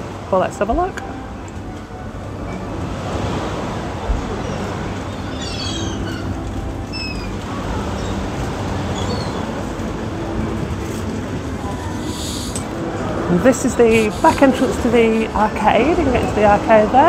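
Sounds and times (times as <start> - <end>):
sea: 0.0 - 17.0
gull calls: 4.5 - 9.5.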